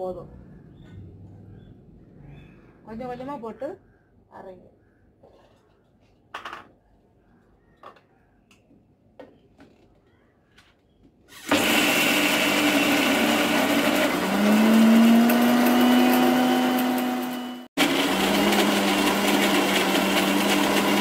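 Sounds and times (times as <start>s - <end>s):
mixer grinder motor whirring: 11.3s - 21.0s.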